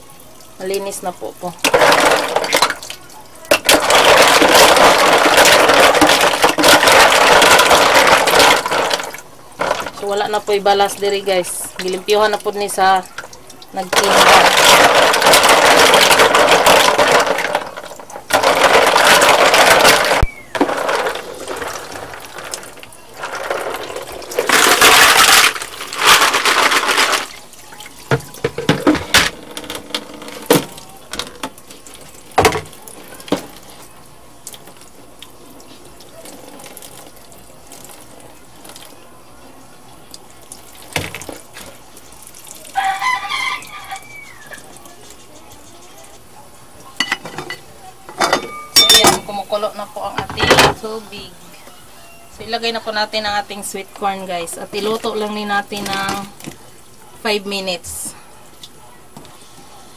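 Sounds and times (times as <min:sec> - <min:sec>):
tap water running: 0:00.0 - 0:51.3, 0:52.4 - 0:59.7
water splashing and sloshing: 0:00.6 - 0:33.7.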